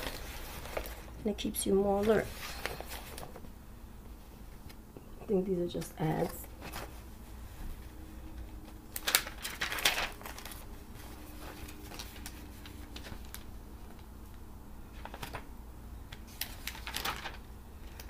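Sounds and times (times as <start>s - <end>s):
magazine pages rustling: 0.0s - 3.5s, 5.8s - 15.5s, 16.1s - 18.0s.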